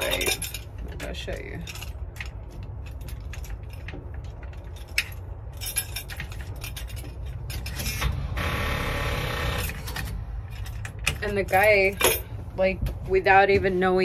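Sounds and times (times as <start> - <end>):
keys jangling: 0.0 - 8.0, 9.8 - 12.4.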